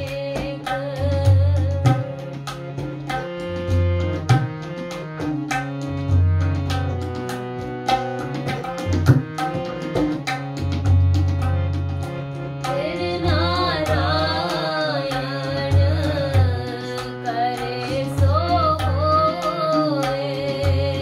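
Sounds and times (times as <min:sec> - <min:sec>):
harmonium held notes: 0:00.0 - 0:21.0
tabla strokes: 0:00.1 - 0:21.0.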